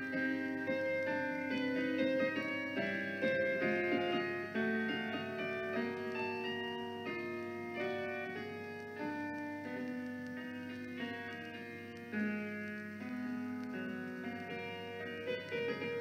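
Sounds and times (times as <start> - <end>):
slow piano music: 0.0 - 16.0.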